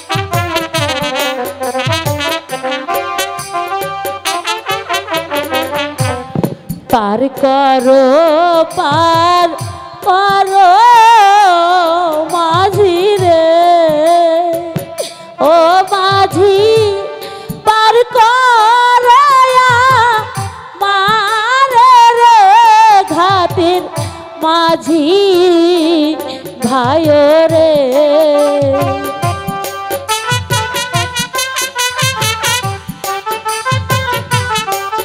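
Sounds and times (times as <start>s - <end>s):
steady drum beats: 0.0s - 35.0s
woman singing folk song: 6.9s - 14.8s, 15.4s - 29.0s.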